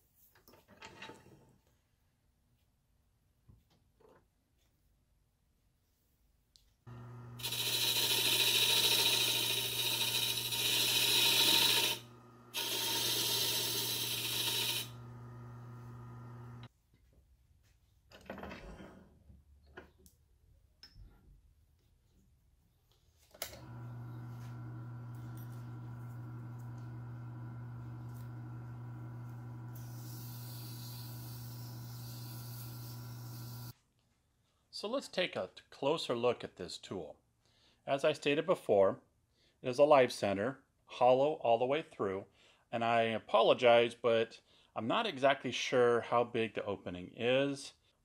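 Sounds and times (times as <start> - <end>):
lathe motor hum: 6.9 - 16.7, 23.5 - 33.7
tool cutting spinning wood: 6.9 - 16.7, 23.5 - 33.7.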